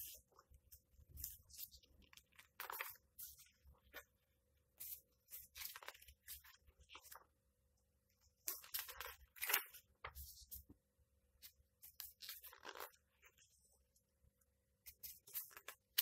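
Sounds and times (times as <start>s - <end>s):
book pages turning: 0.0s - 4.1s, 4.8s - 7.3s, 8.4s - 10.8s, 11.4s - 13.6s, 14.8s - 16.0s.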